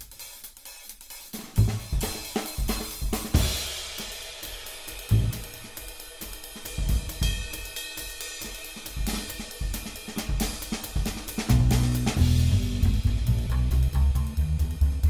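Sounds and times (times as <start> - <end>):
cymbals and hi-hat: 0.0 - 15.0
snare and bass drum strikes: 0.0 - 15.0
band music: 11.5 - 15.0.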